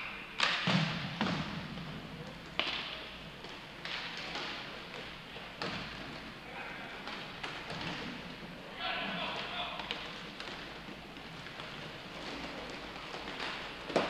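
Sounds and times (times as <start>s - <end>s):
puck hitting rink boards: 0.4s - 6.3s, 7.0s - 14.0s
sticks striking puck: 2.5s - 6.2s, 9.2s - 14.0s.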